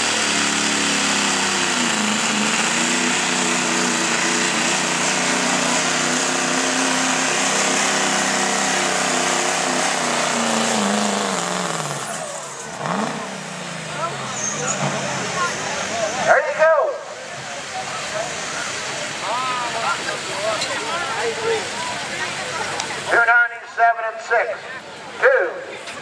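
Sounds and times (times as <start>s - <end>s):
diesel truck engine at high revs: 0.0s - 26.0s.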